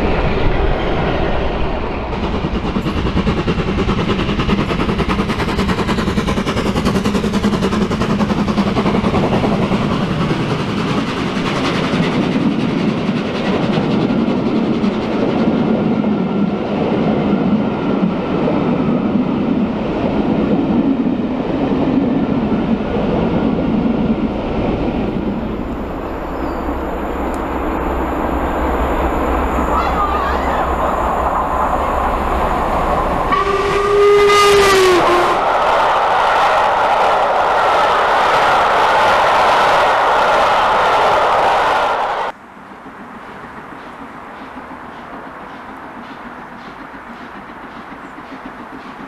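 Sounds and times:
train wheels rumbling on rails: 0:00.0 - 0:49.0.

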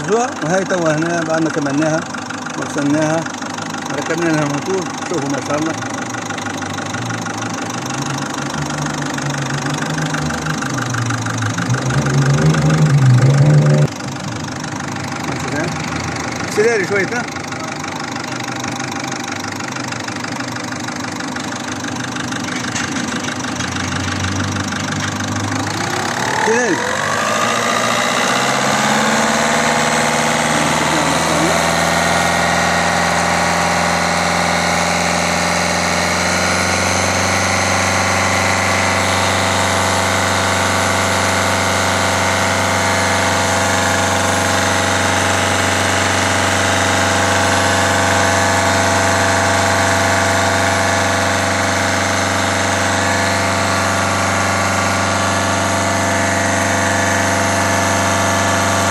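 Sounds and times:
diesel engine idling: 0:00.0 - 0:58.9.

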